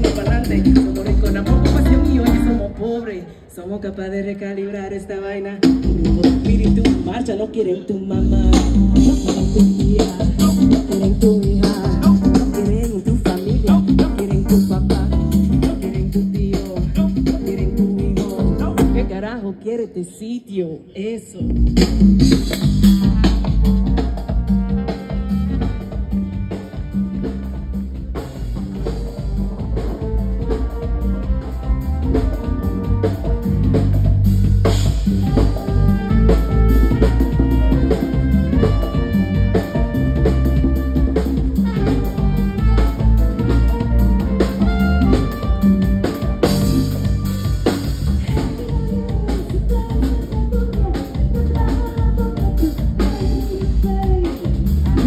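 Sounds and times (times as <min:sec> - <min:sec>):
drum kit and hand drums: 0:00.0 - 0:02.8, 0:05.6 - 0:19.3, 0:21.4 - 0:55.0
electric bass: 0:00.0 - 0:02.8, 0:08.1 - 0:19.3, 0:21.4 - 0:55.0
trumpet: 0:08.1 - 0:16.2, 0:21.7 - 0:55.0
keyboard: 0:08.1 - 0:19.6.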